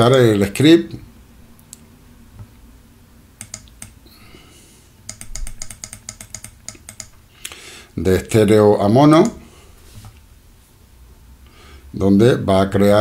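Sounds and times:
mouse and keyboard clicks: 0:03.4 - 0:04.0, 0:05.1 - 0:07.2.

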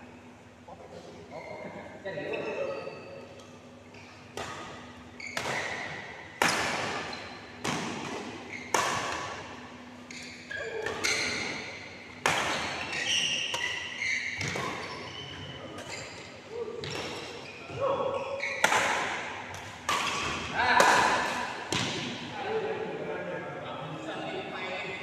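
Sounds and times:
shoes squeaking on court: 0:01.3 - 0:01.8, 0:02.5 - 0:06.1, 0:08.4 - 0:08.8, 0:10.0 - 0:18.6
badminton rackets hitting shuttlecock: 0:04.3 - 0:09.6, 0:10.7 - 0:14.9, 0:18.6 - 0:22.2.

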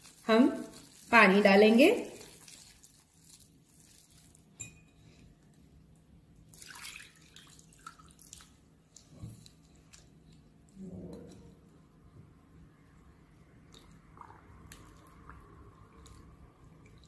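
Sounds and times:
light clinks of glass: 0:04.6 - 0:05.0
water pouring into bowl: 0:06.5 - 0:08.6, 0:13.6 - 0:17.0.

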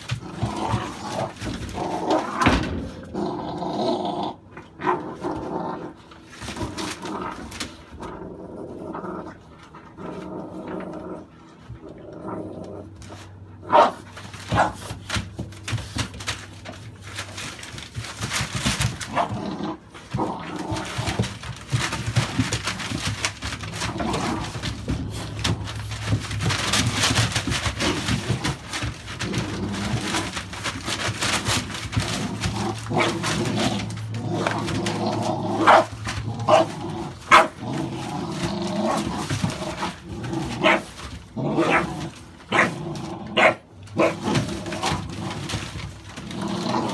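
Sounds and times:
newspaper rustling: 0:13.0 - 0:46.9
puppies barking and yipping: 0:35.6 - 0:37.6, 0:43.4 - 0:45.1.

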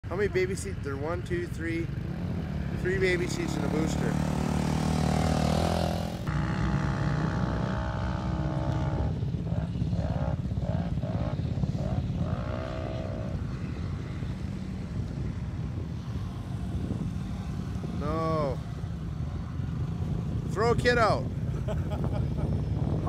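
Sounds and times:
engine running steadily: 0:00.0 - 0:23.0
truck engine revving: 0:02.0 - 0:13.5.

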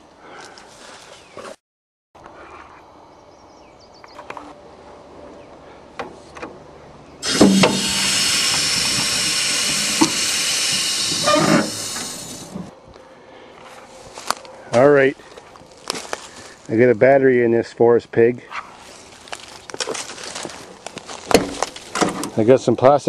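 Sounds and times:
high-pressure spray hiss: 0:07.2 - 0:12.7.

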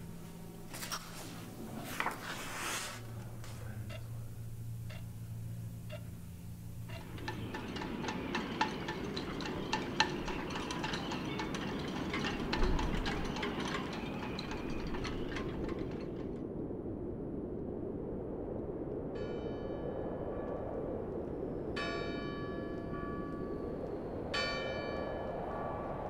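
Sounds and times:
steady low rush: 0:00.0 - 0:26.0
metallic clinking and chiming: 0:06.7 - 0:16.4.

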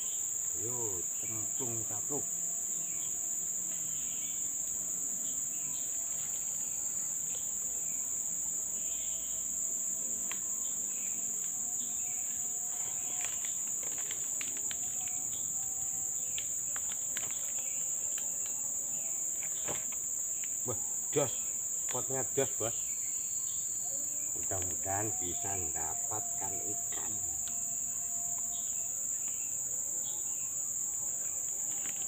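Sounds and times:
high-pitched insect chorus: 0:00.0 - 0:32.0
small clicks and ticks: 0:12.8 - 0:15.3, 0:16.2 - 0:18.6.

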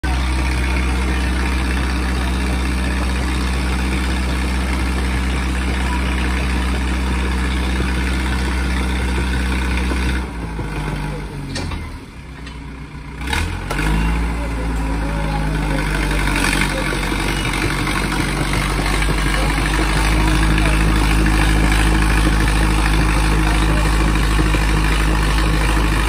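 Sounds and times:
tractor diesel engines running: 0:00.0 - 0:26.0.

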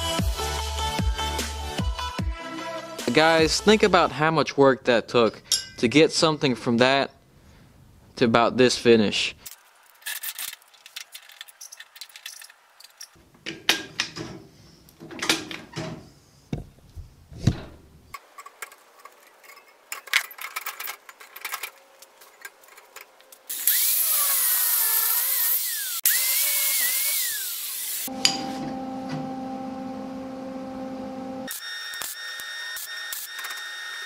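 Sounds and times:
metal parts clinking and scraping: 0:05.2 - 0:05.9, 0:09.4 - 0:15.6, 0:18.1 - 0:23.5
angle grinder whining: 0:23.5 - 0:34.0.

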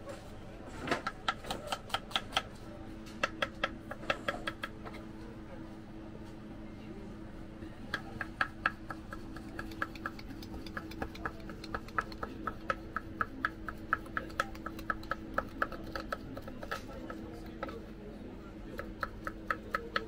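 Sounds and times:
knife chopping on wooden board: 0:07.9 - 0:17.8, 0:18.7 - 0:20.0.

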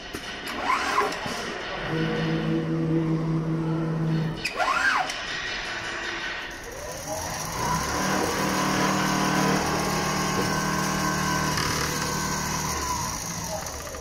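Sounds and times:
sewing machine motor whine: 0:06.6 - 0:14.0.

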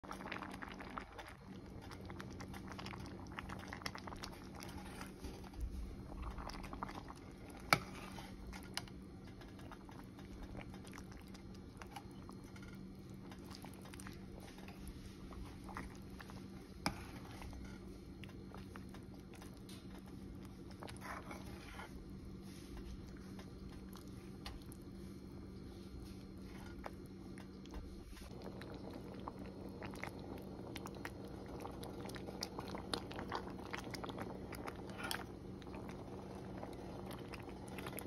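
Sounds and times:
steady low hum: 0:00.0 - 0:38.0
spoon stirring thick porridge: 0:03.3 - 0:24.8.

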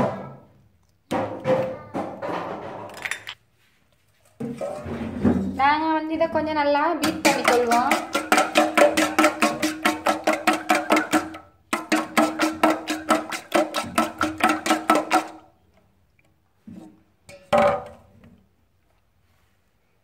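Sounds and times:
spoon beating eggs in metal bowl: 0:07.0 - 0:15.5.

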